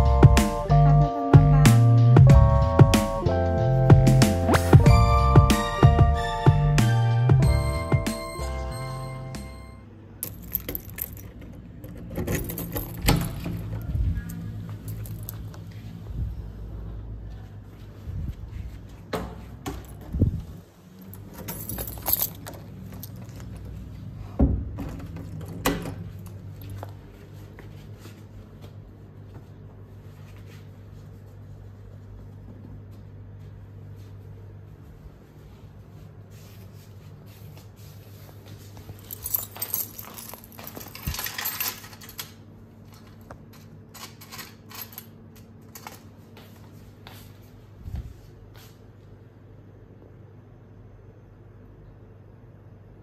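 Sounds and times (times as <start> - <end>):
keys jangling: 10.2 - 13.9, 14.7 - 15.6, 21.0 - 23.7, 38.8 - 42.4, 43.0 - 46.1.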